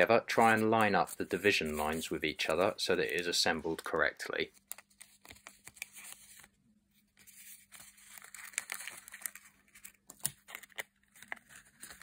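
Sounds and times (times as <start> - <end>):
paper tubes rustling: 0.0 - 3.9, 7.2 - 12.0.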